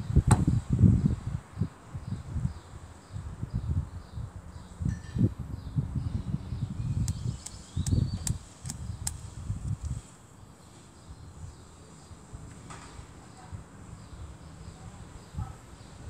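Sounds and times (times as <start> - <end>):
sharp clicks: 7.0 - 10.0.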